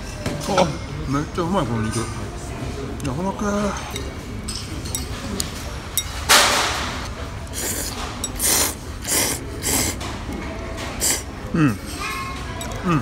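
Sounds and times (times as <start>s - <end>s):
chopsticks tossing noodles in bowl: 7.4s - 11.3s.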